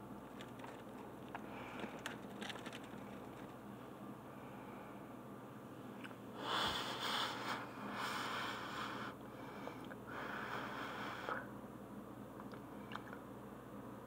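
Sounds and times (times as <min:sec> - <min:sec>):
person breathing heavily through nose: 0:06.4 - 0:11.5.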